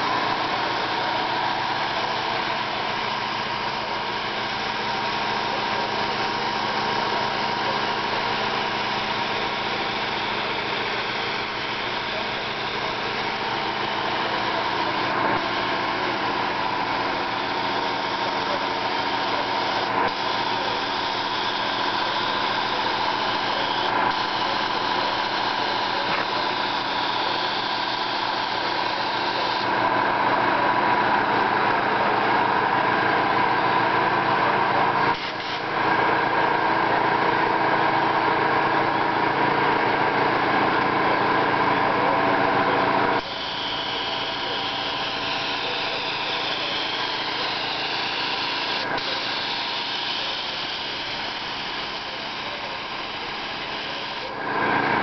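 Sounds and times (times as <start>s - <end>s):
motor drone: 0.0s - 55.0s
spray gun hissing: 43.2s - 54.3s.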